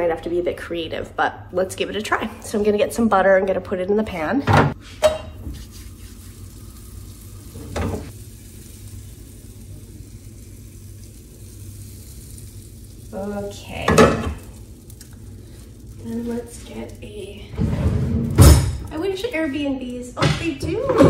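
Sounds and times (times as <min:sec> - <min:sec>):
butter sizzling in a frying pan: 0:05.6 - 0:17.4.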